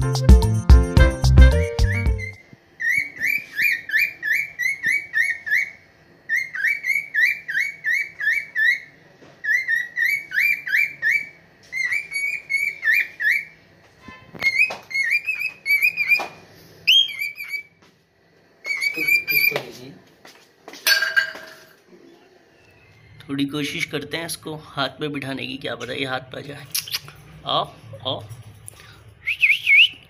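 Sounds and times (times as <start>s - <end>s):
cockatiel chirping whistles: 1.7s - 8.9s, 9.5s - 13.5s, 14.4s - 17.7s, 18.6s - 19.6s, 29.2s - 30.0s.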